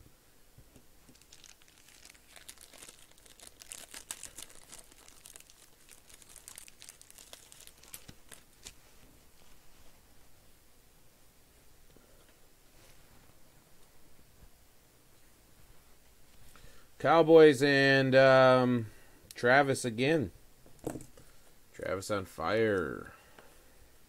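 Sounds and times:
plastic bag crinkling: 0:01.0 - 0:08.8.

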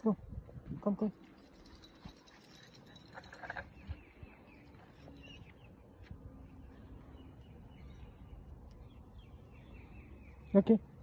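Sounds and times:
bird chirping: 0:02.5 - 0:11.0.

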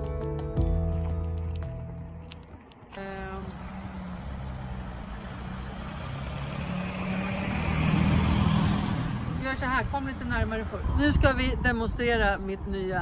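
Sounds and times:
road noise: 0:00.0 - 0:13.0
vehicle engine running: 0:00.6 - 0:10.9.

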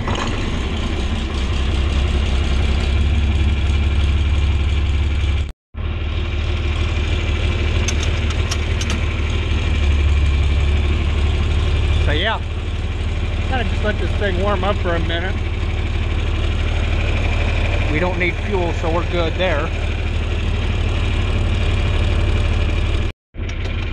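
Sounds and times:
tractor engine idling: 0:00.0 - 0:23.9.

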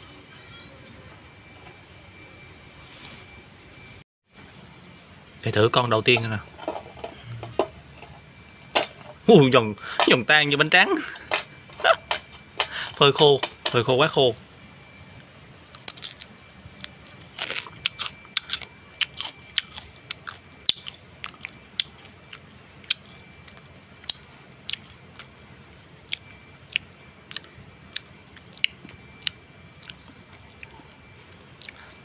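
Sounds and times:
crunching and chewing dried fish: 0:15.7 - 0:32.0.

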